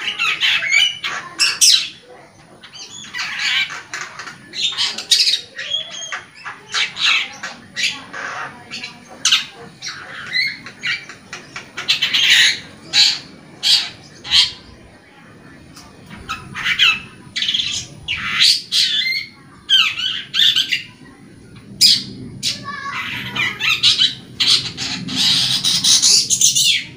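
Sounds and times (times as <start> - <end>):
bird chattering song: 0.0 - 26.9.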